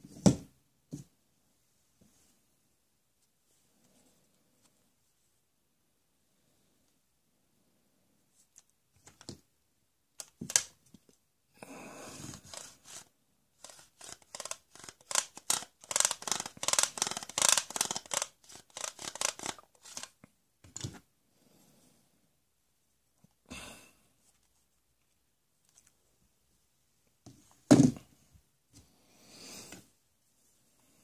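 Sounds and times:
toy saw rasping on plastic: 12.2 - 20.1.

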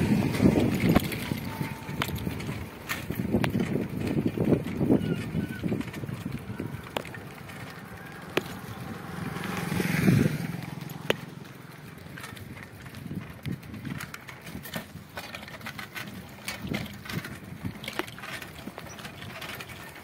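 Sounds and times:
motorcycle passing: 0.0 - 14.6
bicycle clicks and rattles: 0.0 - 20.0.

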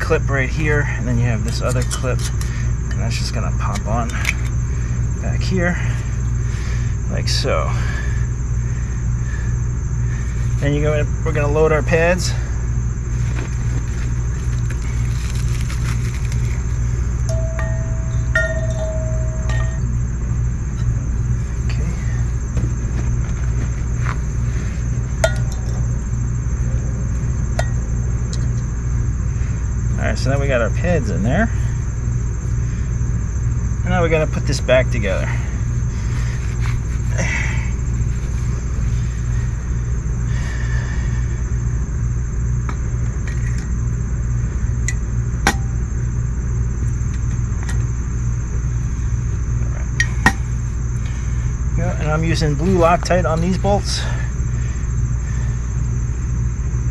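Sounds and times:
steady low rumble: 0.0 - 56.9
sharp metal clinks: 17.3 - 20.0.

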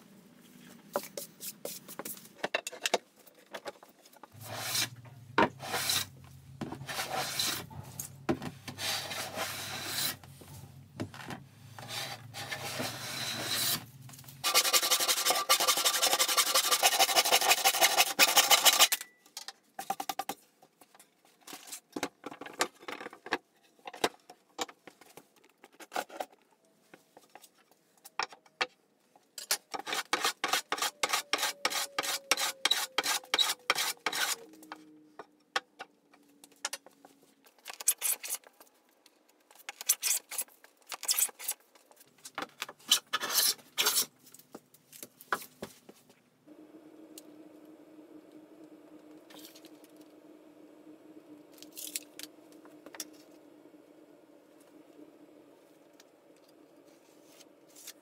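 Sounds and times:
hand plane shaving wood: 4.4 - 6.1, 6.8 - 7.6, 8.8 - 10.2, 14.4 - 18.8, 29.8 - 34.4.

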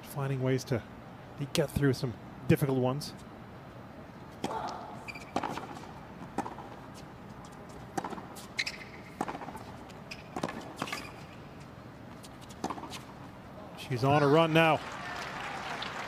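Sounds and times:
tennis ball bounces: 4.4 - 11.4, 12.4 - 13.2
tennis racket strikes: 7.9 - 8.4, 9.0 - 11.0.

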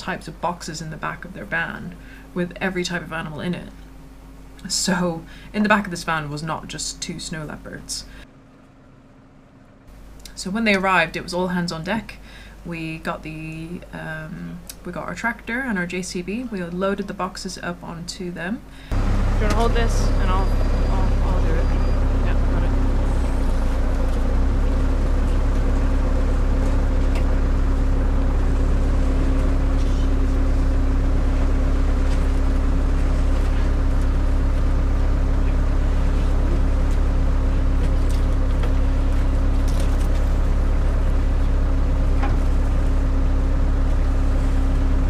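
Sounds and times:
diesel engine idling: 18.6 - 45.0.

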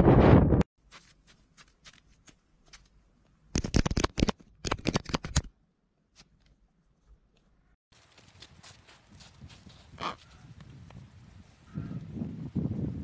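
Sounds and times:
footsteps crunching on wet snow: 0.8 - 3.0, 7.0 - 11.3.

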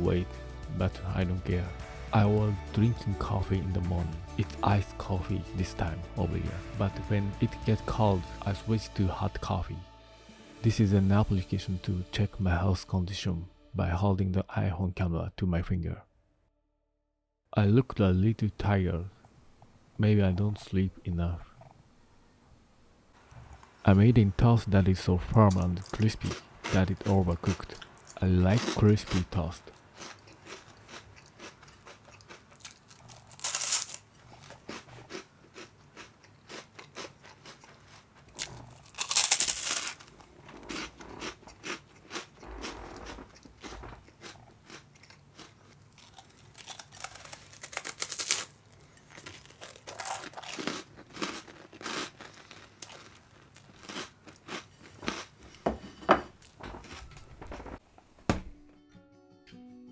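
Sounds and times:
crunching and chewing toast: 25.4 - 55.6.

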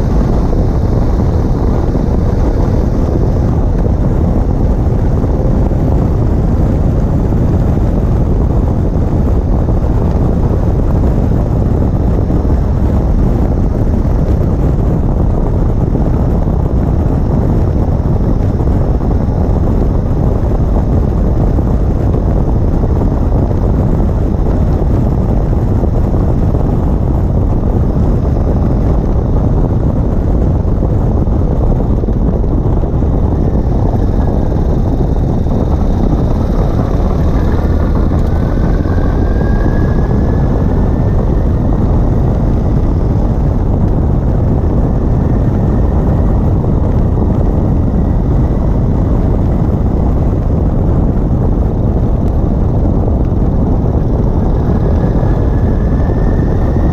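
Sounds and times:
tyre and road noise: 0.0 - 56.9
wind buffeting: 0.0 - 56.9
faint rising whine: 30.8 - 50.5, 53.2 - 56.9.

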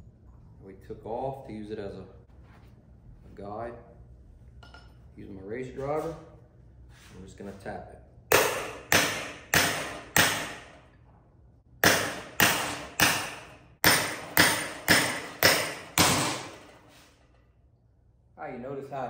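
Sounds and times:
hammer striking steel: 8.3 - 10.8, 11.8 - 16.8.

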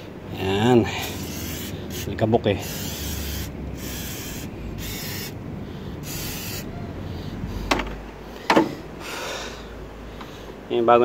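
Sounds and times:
hissing spray: 1.1 - 5.4, 6.0 - 6.8.

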